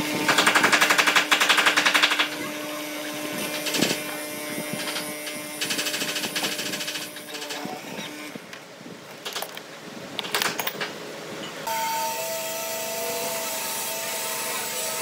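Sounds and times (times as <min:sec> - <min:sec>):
motor humming: 0:00.0 - 0:08.5.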